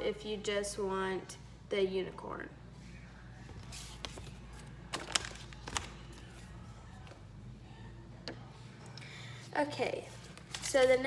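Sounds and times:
low steady hum: 0.0s - 11.0s
plastic items clicking and crinkling: 4.9s - 6.0s.

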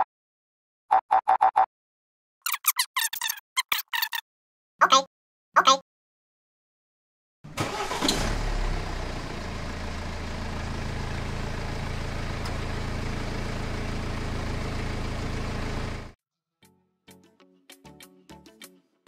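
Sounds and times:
tractor engine idling: 7.5s - 16.2s.

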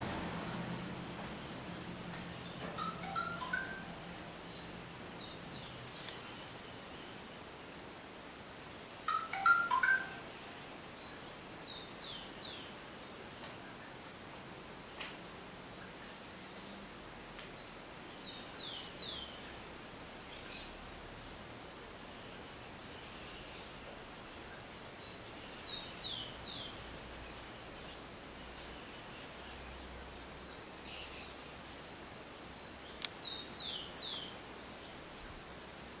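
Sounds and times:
background hiss: 0.0s - 36.0s
loud bird chirping: 2.4s - 3.9s.

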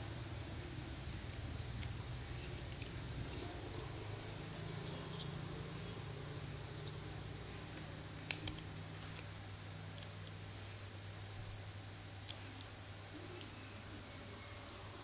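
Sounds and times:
steady low hum: 0.0s - 15.0s
plastic straws clicking: 8.2s - 9.3s, 9.9s - 13.7s.

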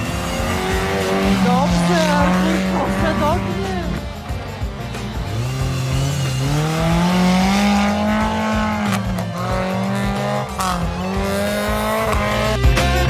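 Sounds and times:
engine revving hard: 0.0s - 13.0s.

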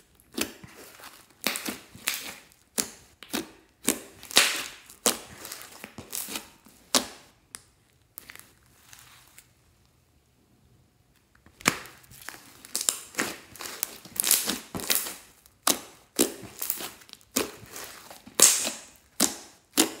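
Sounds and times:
slime crackling pops: 1.4s - 5.3s, 11.5s - 20.0s.

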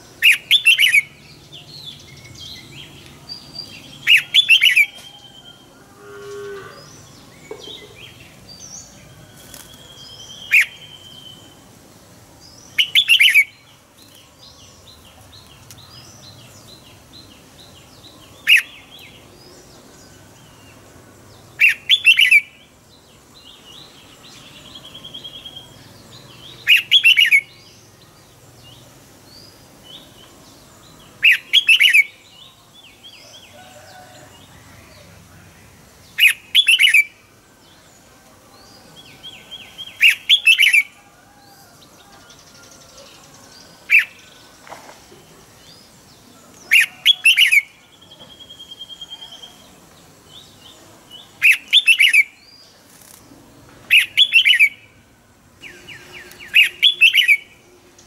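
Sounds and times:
bulbul singing: 0.0s - 11.7s, 21.5s - 33.0s, 35.7s - 37.9s, 38.6s - 41.1s, 45.6s - 52.8s, 53.9s - 58.0s
faint chirping of other birds: 0.0s - 58.0s.

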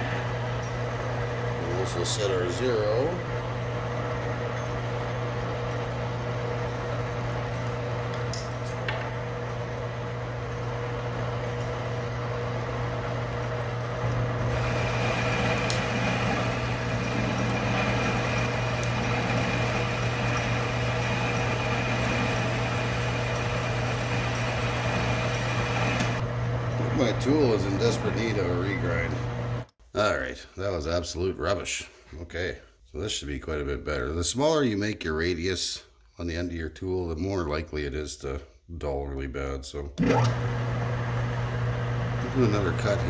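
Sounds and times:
lathe tool cutting hiss: 14.4s - 26.2s
metal lathe running: 14.4s - 26.2s.

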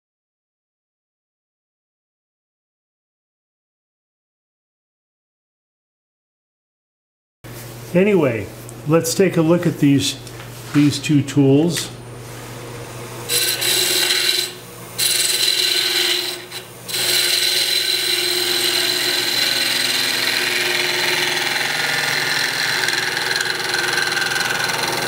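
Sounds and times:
gouge cutting wood on lathe: 13.3s - 25.0s.

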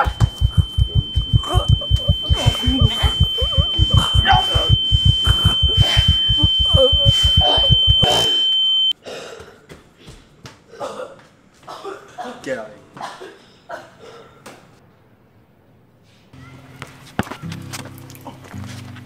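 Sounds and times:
fast low thumping pulse: 0.0s - 8.9s
high-pitched ringing tone: 0.0s - 9.0s.

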